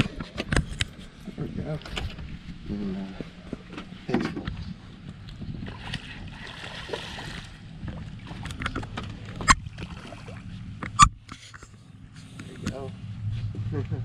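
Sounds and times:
knocks and clatter on boat: 0.0 - 2.5, 3.2 - 6.1, 7.7 - 11.8
low steady hum: 0.0 - 14.0.

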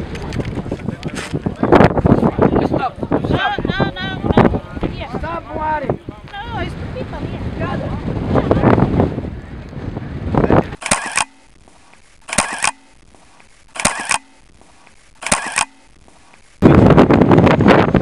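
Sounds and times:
wind buffeting microphone: 0.0 - 11.0, 16.0 - 18.0
camera shutter double click: 10.8 - 11.4, 12.3 - 13.0, 13.8 - 14.4, 15.2 - 15.9.

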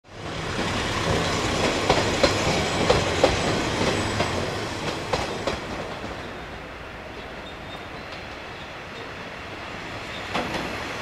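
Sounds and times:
rumble of train wheels: 0.1 - 11.0
wheels clacking over rail joints: 0.5 - 6.4, 10.1 - 10.9.

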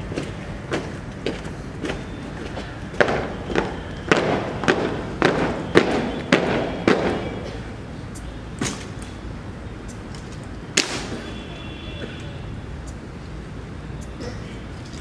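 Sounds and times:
boots stamping on tarmac: 0.0 - 7.3.

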